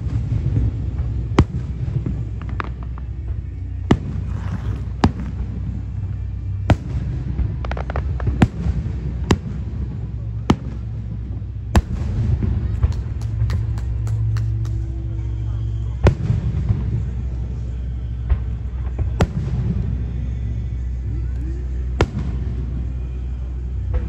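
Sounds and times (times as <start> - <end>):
firework shells booming: 0.0 - 5.9, 6.6 - 15.0
firework crackling: 0.0 - 24.0
low rumble: 0.0 - 24.0.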